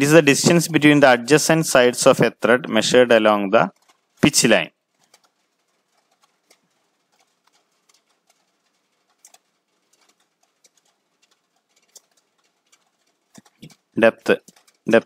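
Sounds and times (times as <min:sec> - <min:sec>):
faint clicks: 0:05.0 - 0:14.9.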